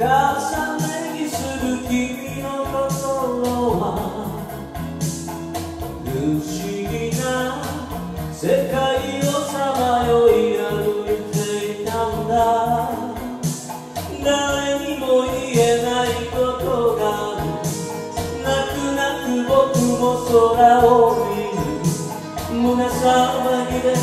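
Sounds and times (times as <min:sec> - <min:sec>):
man singing: 0:00.0 - 0:04.9, 0:05.9 - 0:24.0
drums steady beat: 0:00.0 - 0:24.0
karaoke backing track: 0:00.0 - 0:24.0.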